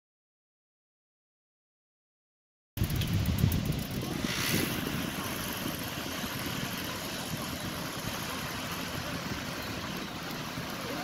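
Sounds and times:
wind buffeting microphone: 2.8 - 11.0
surf breaking on beach: 3.9 - 11.0.

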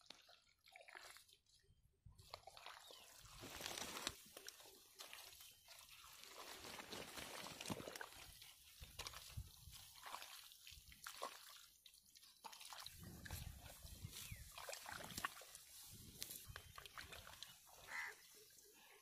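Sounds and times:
small wet clicks: 2.2 - 13.4, 14.5 - 17.7
hands squelching in mud: 6.1 - 11.6, 12.4 - 18.1.

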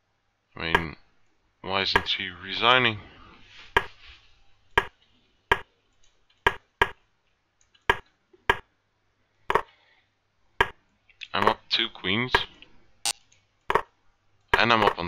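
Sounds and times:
chess piece move clicks: 4.8 - 7.0.

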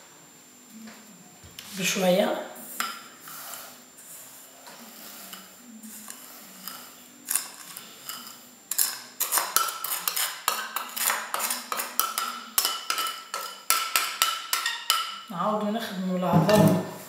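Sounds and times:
bowls and utensils clinking: 5.3 - 15.3.

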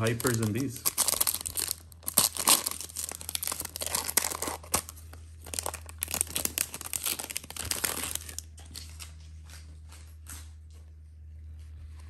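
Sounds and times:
foil wrapper crinkling: 0.0 - 10.5.

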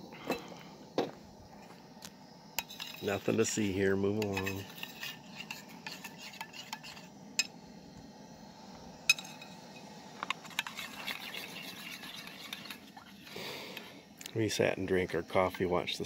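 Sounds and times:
faint steady hiss: 0.0 - 16.0
spoon stirring batter in bowl: 4.2 - 7.1, 10.4 - 13.3.

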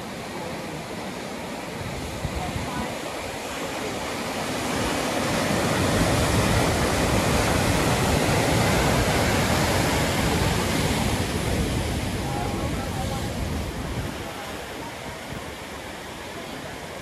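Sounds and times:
ocean waves crashing on rocks: 0.0 - 17.0.

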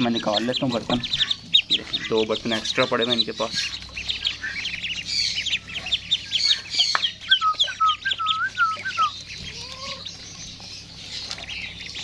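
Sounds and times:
ducklings peeping: 0.0 - 12.0
lower bird calls: 0.0 - 12.0.

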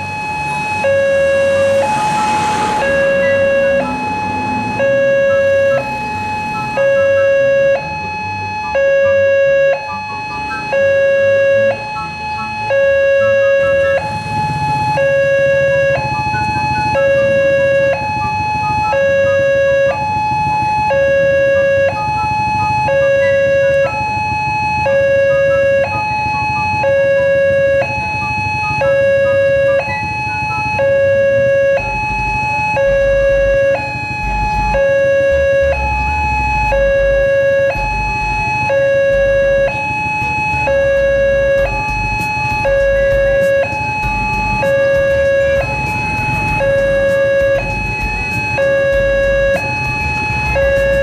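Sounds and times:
low rumble: 0.0 - 8.3, 31.8 - 39.7, 40.6 - 49.6
two-tone crossing alarm: 0.0 - 51.0.

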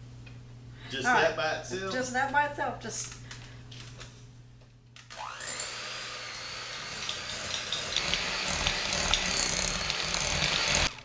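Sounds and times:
electric hand mixer whirring: 5.0 - 11.0.

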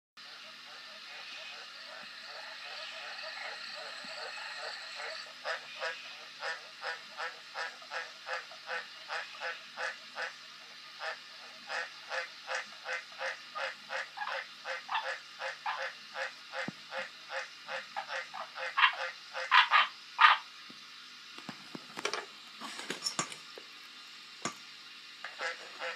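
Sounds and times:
tree frog croaking: 12.1 - 20.4.

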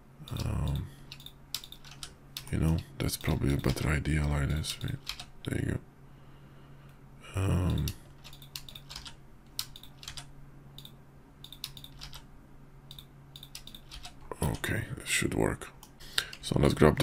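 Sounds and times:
faint low hum: 0.0 - 17.0
keyboard and mouse clicking: 0.2 - 2.5, 3.2 - 5.3, 7.7 - 12.3, 12.9 - 14.6.

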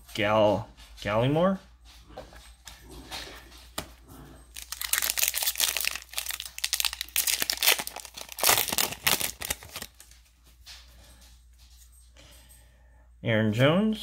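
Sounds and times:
plastic wrapper crinkling and tearing: 4.5 - 10.2.

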